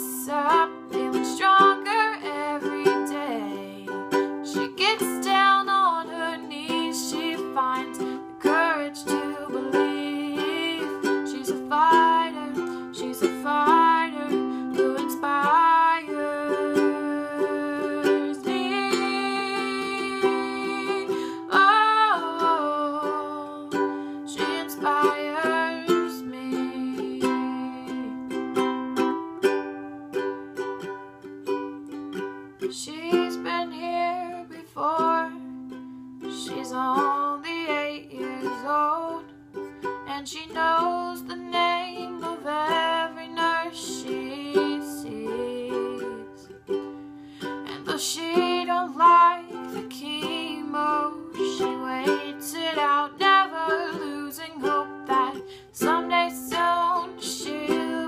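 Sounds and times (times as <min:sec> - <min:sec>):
young woman singing: 0:00.0 - 0:30.7, 0:32.2 - 0:58.0
ukulele strumming chords: 0:00.0 - 0:58.0.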